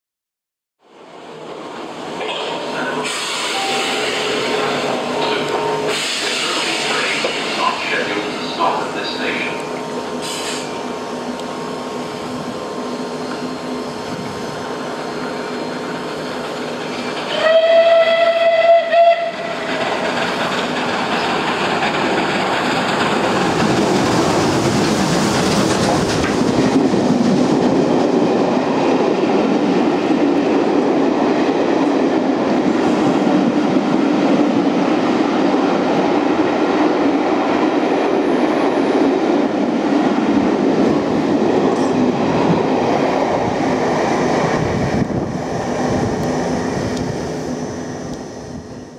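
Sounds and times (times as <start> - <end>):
train rumbling past: 0.9 - 48.9
steam locomotive whistle: 3.0 - 4.7, 17.3 - 19.7.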